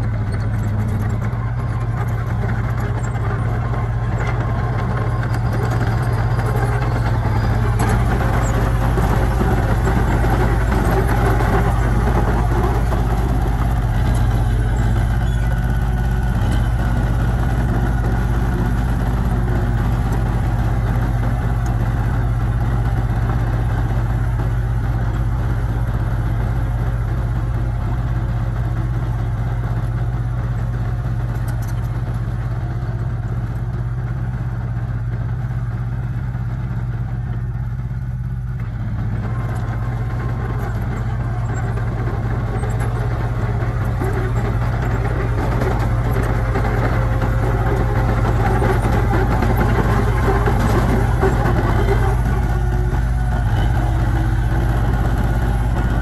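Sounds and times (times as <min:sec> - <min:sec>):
bulldozer diesel engine: 0:00.0 - 0:56.0.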